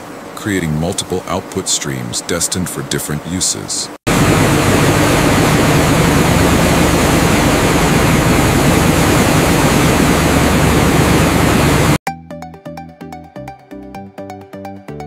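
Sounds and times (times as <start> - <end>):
low hum: 4.0 - 12.0
industrial machinery running: 4.1 - 12.0.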